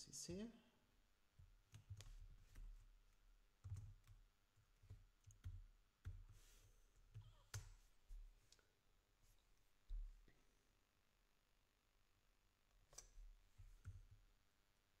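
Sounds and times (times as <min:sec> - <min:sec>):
faint keyboard keystrokes: 0:03.6 - 0:07.8.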